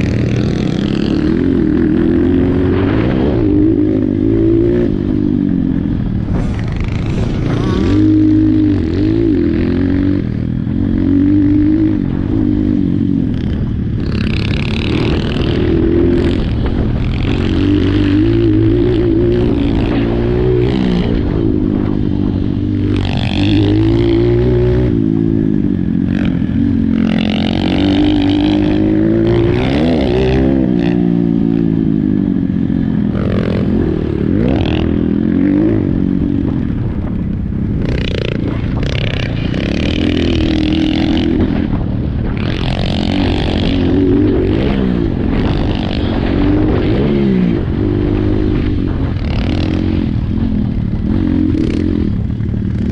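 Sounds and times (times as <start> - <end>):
motorbike engine revving: 0.0 - 52.9
bursts of rushing noise: 6.1 - 9.2.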